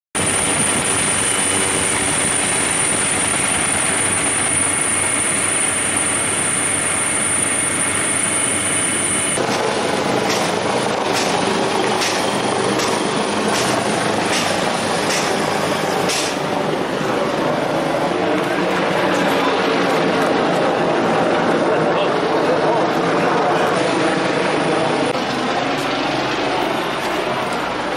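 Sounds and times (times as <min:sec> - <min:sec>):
helicopter noise: 0:00.2 - 0:27.9
turbine whine: 0:00.2 - 0:27.9
sharp knocks: 0:09.4 - 0:15.4, 0:16.0 - 0:16.4.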